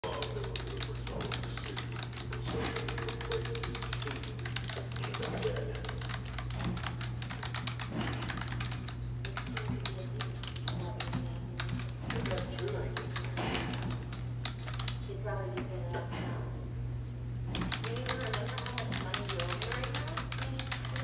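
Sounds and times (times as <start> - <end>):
typing on computer keyboard: 0.0 - 15.0, 17.5 - 21.0
steady low hum: 0.0 - 21.0.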